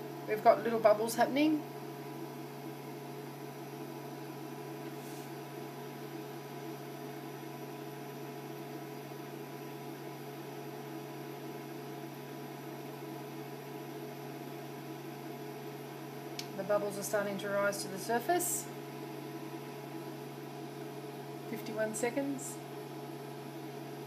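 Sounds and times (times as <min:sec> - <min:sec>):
induction hotplate humming: 0:00.0 - 0:24.0
fan-like hiss: 0:04.8 - 0:05.6.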